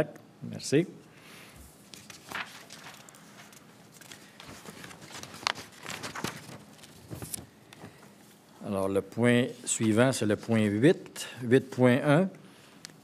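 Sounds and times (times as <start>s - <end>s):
paper shuffling and rustling: 1.6s - 8.4s.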